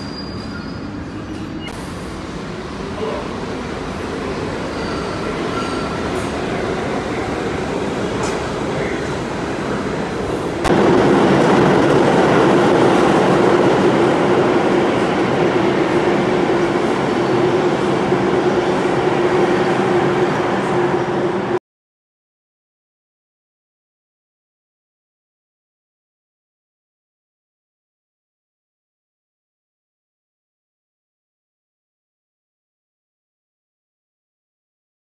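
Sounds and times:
train wheels rumbling on rails: 0:00.0 - 0:21.6.

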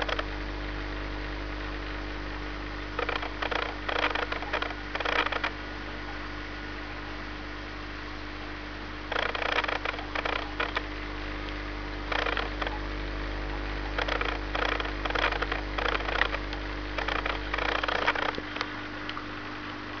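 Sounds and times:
aquarium equipment humming: 0:00.0 - 0:20.0
crackly noise bursts: 0:00.0 - 0:20.0.

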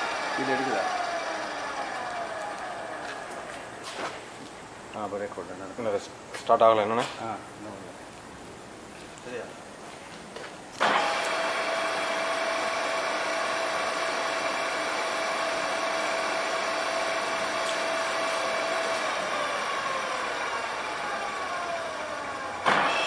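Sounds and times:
drilling machine motor whine: 0:00.0 - 0:03.9, 0:10.8 - 0:23.0.

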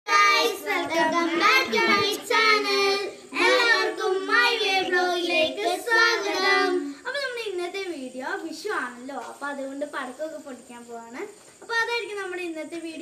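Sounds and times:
children singing: 0:00.1 - 0:07.0.

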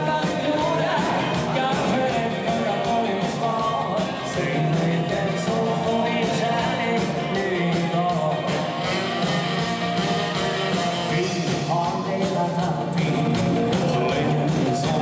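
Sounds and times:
electric guitar: 0:00.0 - 0:15.0
steady drum beat: 0:00.0 - 0:15.0
saxophone: 0:05.0 - 0:11.8.

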